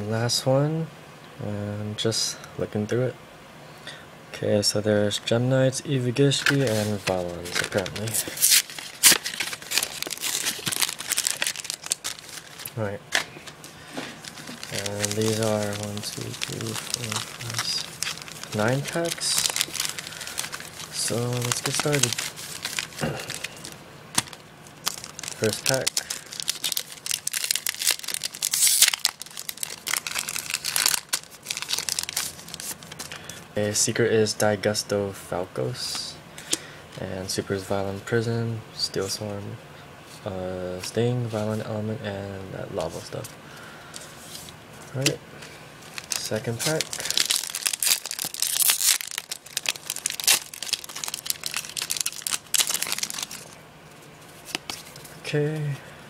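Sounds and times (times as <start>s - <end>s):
foil wrapper crinkling: 6.3s - 33.4s, 45.8s - 55.2s
foil pack ripping: 6.5s - 12.8s, 13.6s - 33.4s, 45.8s - 53.6s.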